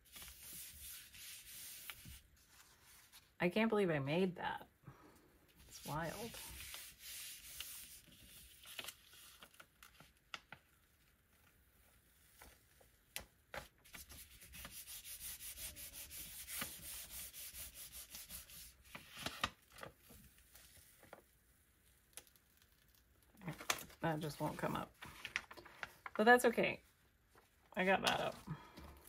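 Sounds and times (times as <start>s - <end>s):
hands rubbing paper: 0.0s - 3.3s, 5.6s - 9.6s, 13.8s - 19.5s.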